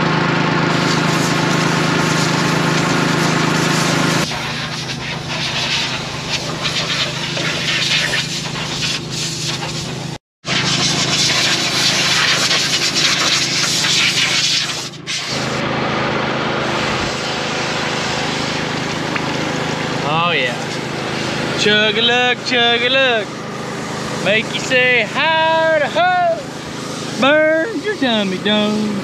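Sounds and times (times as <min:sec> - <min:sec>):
compressed air hissing: 0:00.7 - 0:15.6, 0:16.6 - 0:19.2, 0:20.5 - 0:22.2, 0:22.9 - 0:28.9
steady low hum: 0:16.6 - 0:29.0.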